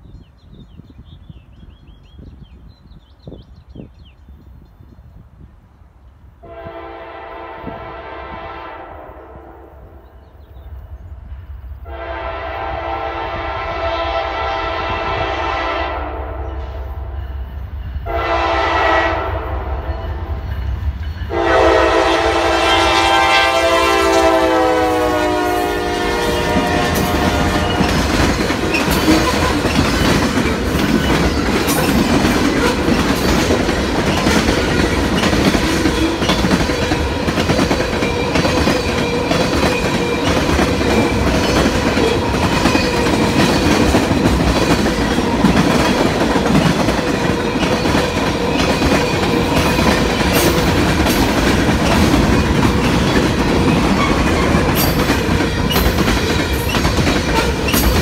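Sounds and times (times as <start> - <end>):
train air horn: 6.4 - 10.2, 11.8 - 17.4, 18.0 - 20.5, 21.3 - 29.8
train wheels clacking over rail joints: 26.2 - 58.0.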